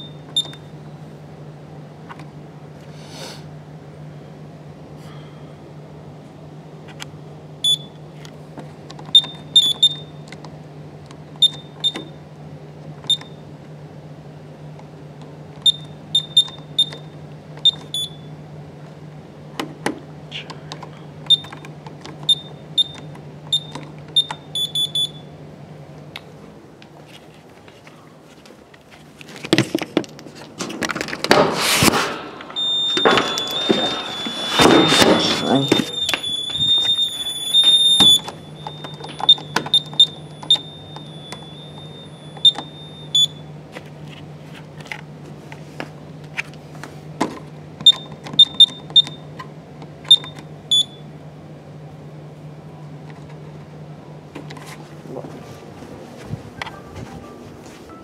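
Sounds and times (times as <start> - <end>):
keypad beeps: 0.0 - 0.7, 7.6 - 7.9, 9.1 - 10.2, 11.4 - 12.1, 13.1 - 13.4, 15.6 - 18.3, 21.3 - 21.6, 22.3 - 25.2, 32.6 - 43.4, 47.8 - 49.2, 50.1 - 51.0
scraping and handling noise: 26.8 - 37.0, 43.7 - 47.5, 54.3 - 57.9
steady high tone: 32.4 - 43.5.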